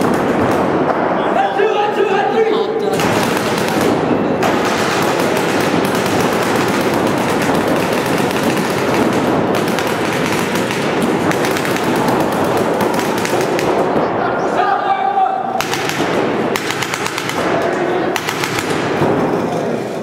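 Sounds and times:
paintball markers firing: 3.0s - 13.9s, 15.6s - 19.5s.

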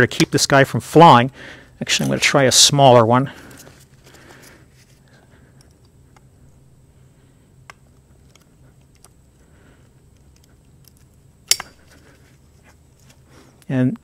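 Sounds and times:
low steady hum: 0.0s - 14.0s
metallic clicks of pliers: 10.1s - 11.8s.

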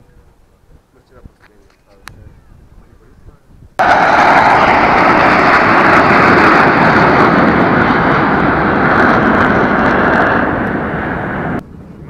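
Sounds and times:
jet aircraft engine roar: 3.8s - 12.0s.

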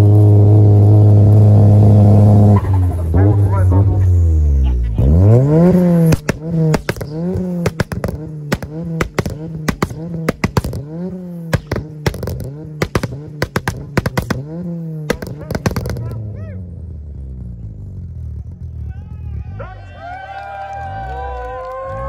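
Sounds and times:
car engine revving: 0.0s - 21.4s
exhaust pops and crackles: 4.6s - 16.5s.

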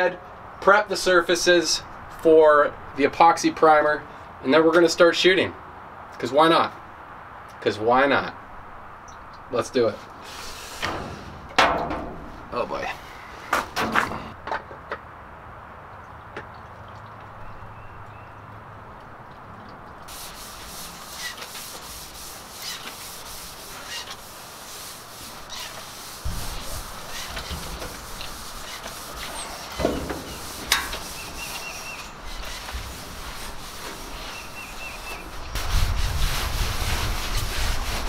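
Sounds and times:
rags rubbing sheet metal: 10.2s - 14.3s, 20.1s - 38.0s.

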